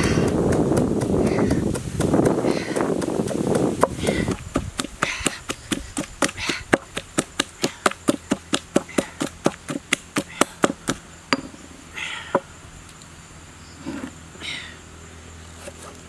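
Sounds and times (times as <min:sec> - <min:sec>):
pestle pounding in stone mortar: 0:00.0 - 0:11.5.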